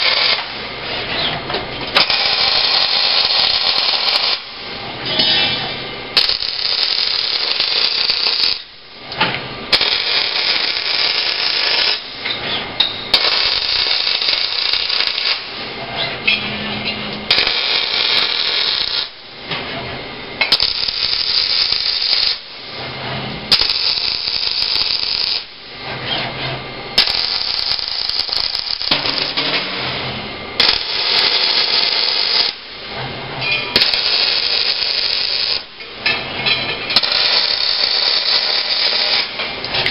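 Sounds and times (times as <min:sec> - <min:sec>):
welding arc: 0:00.0 - 0:00.7, 0:01.9 - 0:04.7, 0:05.3 - 0:08.8, 0:09.7 - 0:12.3, 0:13.1 - 0:15.8, 0:17.3 - 0:19.3, 0:20.4 - 0:22.8, 0:23.5 - 0:25.7, 0:26.9 - 0:32.9, 0:33.7 - 0:35.8, 0:36.4 - 0:39.9.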